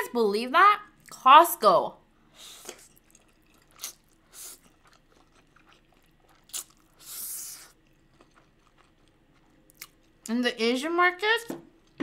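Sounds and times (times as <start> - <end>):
soft chewing and mouth sounds: 2.3 - 10.4.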